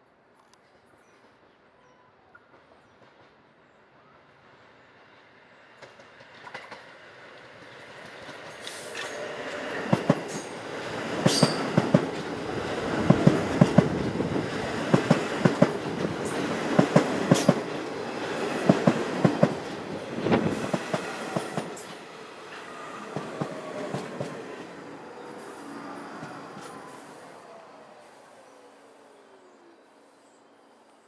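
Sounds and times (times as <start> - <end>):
subway train rolling past: 0.7 - 31.0
wheels clacking over rail joints: 5.8 - 24.8.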